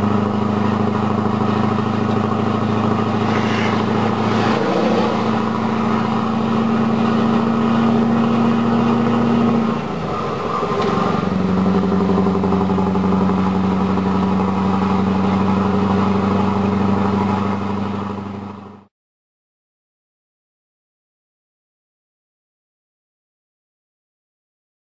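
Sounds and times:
truck diesel engine droning: 0.0 - 18.8.

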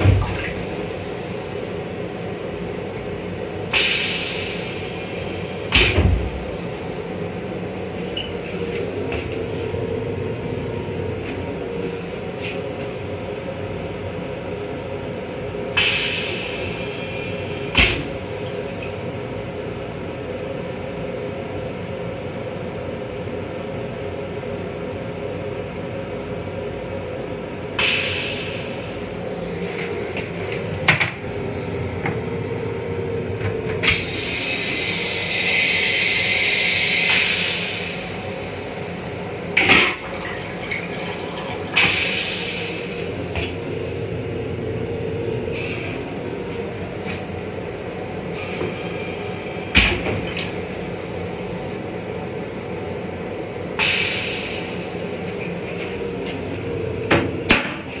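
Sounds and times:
toilet flushing: 0.0 - 2.0, 33.4 - 43.6
moving train rumble: 25.4 - 58.0.

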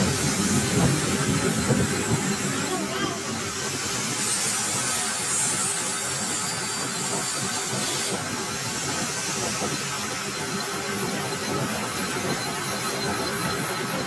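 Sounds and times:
metal lathe cutting hiss: 0.0 - 14.0.

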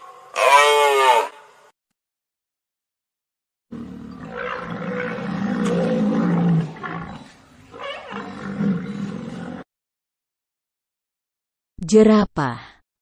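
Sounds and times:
rhinoceros calling: 0.0 - 1.4, 4.0 - 9.6.

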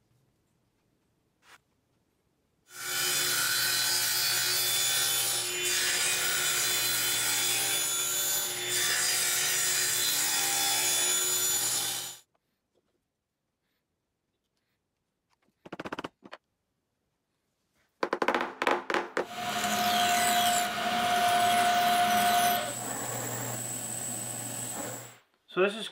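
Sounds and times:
table saw cutting wood: 2.7 - 12.2, 19.2 - 25.2.

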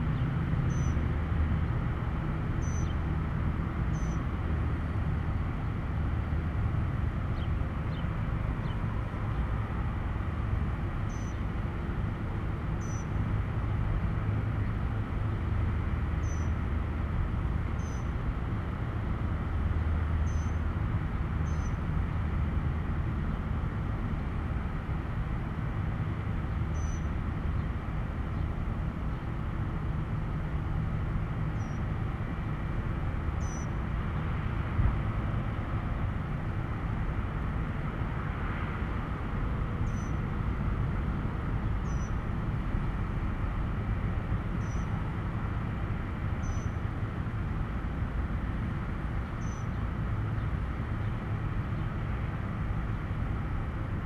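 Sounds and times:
road traffic rumble: 0.0 - 54.0
faint high chirp: 0.1 - 1.0, 2.6 - 3.0, 3.9 - 4.2, 11.1 - 11.4, 12.8 - 13.2, 16.2 - 16.6, 17.8 - 18.1, 20.2 - 20.6, 21.4 - 21.8, 26.7 - 27.1, 31.6 - 31.8, 33.4 - 33.8, 39.8 - 40.2, 41.8 - 42.2, 44.6 - 44.9, 46.4 - 46.8, 49.4 - 49.8.

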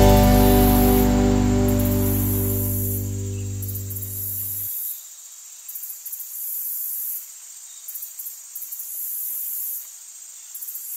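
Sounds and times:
steady high hiss: 0.0 - 4.7.

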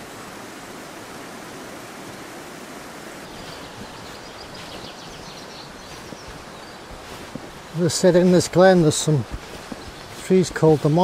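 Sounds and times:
rapid bird chirping: 3.3 - 11.0.

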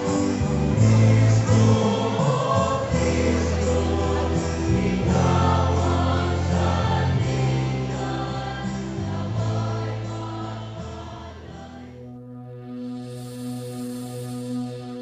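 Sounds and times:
choir singing: 0.0 - 12.2.

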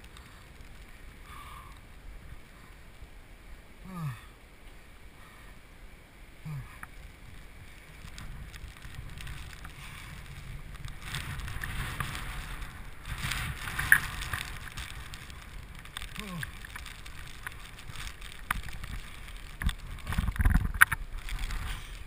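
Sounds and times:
wind buffeting microphone: 6.8 - 22.0.

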